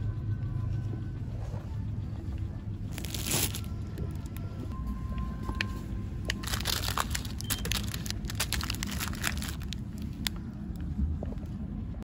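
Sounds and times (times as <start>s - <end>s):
low rumble: 0.0s - 12.0s
clicks and crinkles of handling: 2.9s - 11.6s.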